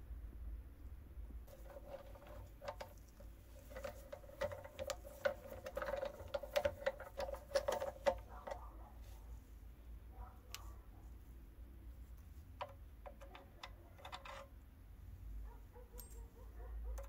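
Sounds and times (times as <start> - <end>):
small clicks and scrapes: 1.4 - 9.5, 10.2 - 11.4, 12.0 - 14.7, 15.4 - 17.0
metal crank squeaking: 13.1 - 14.6.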